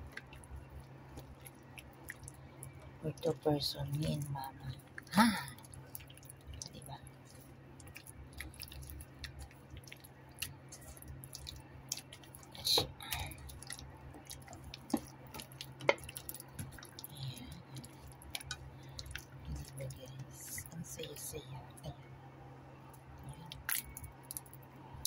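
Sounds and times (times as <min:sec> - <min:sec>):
steady low hum: 0:00.0 - 0:25.0
wet squelching of raw chicken: 0:05.7 - 0:19.7.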